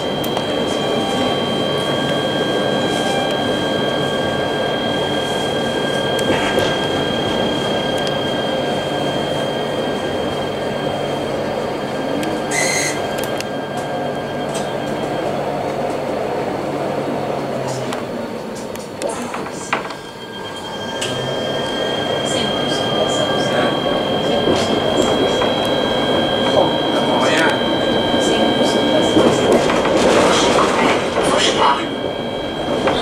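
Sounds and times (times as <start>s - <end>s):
tram rolling noise: 0.0s - 33.0s
wheel squeal: 12.4s - 15.0s.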